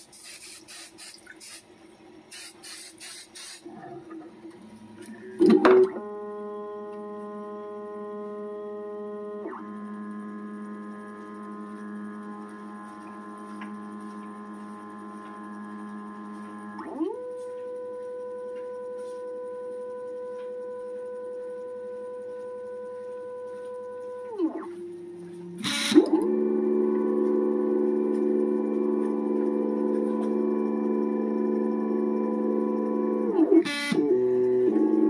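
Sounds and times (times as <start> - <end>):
aerosol spray hisses: 0.0 - 1.7, 2.3 - 3.7
stepper motors whining: 3.7 - 35.0.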